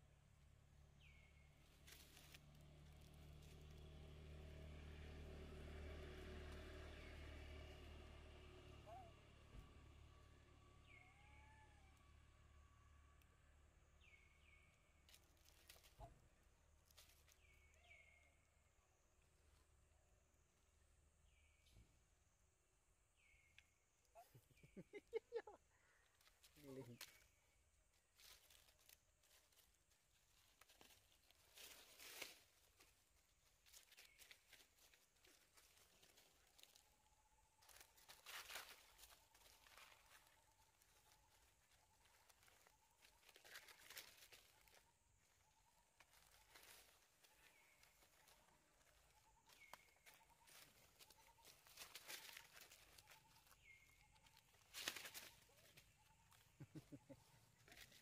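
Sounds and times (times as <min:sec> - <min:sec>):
rustles in dry leaf litter: 0:01.6 - 0:06.8, 0:15.1 - 0:16.0, 0:28.1 - 0:37.0, 0:37.6 - 0:58.0.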